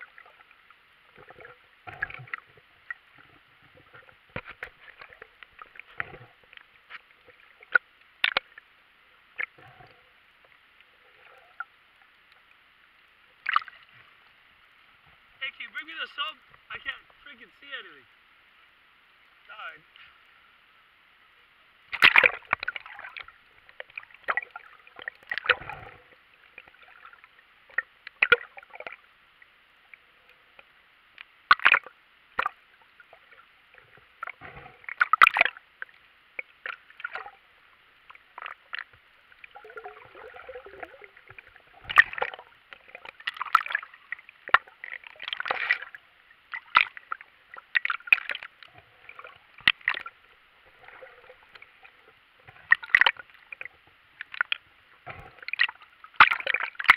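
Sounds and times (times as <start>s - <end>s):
underwater sloshing and bubbling: 0.0s - 56.9s
faint hiss: 2.6s - 43.2s
splash: 13.4s - 13.9s, 21.9s - 29.0s, 31.5s - 33.4s, 34.2s - 35.6s, 36.4s - 37.4s, 38.3s - 56.9s.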